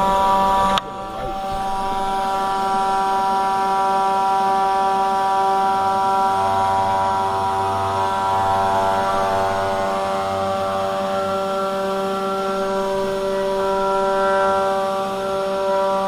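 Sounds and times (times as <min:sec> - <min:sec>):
deep low hum: 0:00.0 - 0:03.7
router spindle whine milling wood: 0:00.0 - 0:16.0.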